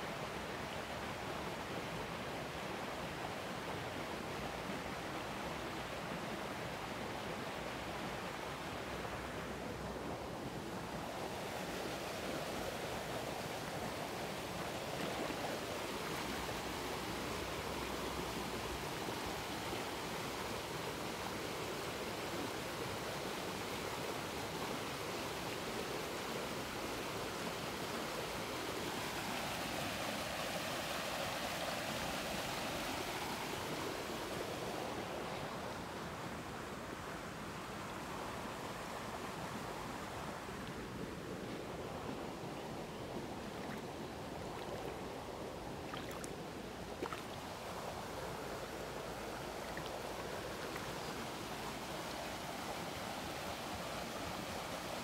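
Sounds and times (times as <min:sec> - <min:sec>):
creek water flowing over stones: 0:00.0 - 0:55.0.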